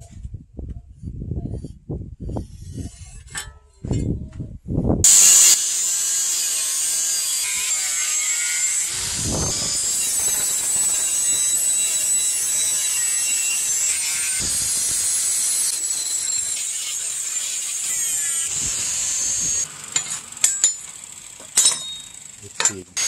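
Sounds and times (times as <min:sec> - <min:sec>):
angle grinder cutting steel: 0:05.0 - 0:23.0.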